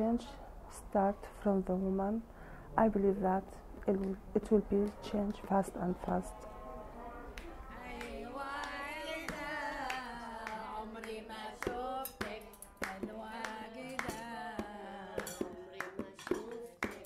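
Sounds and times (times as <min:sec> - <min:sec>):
hand claps or drum strikes: 0:07.4 - 0:17.0
woman singing with vibrato: 0:07.7 - 0:17.0.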